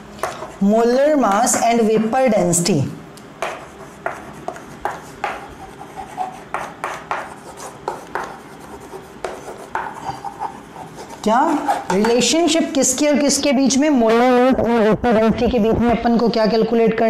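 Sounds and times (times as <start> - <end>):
chalk scratching on chalkboard: 3.4 - 12.2.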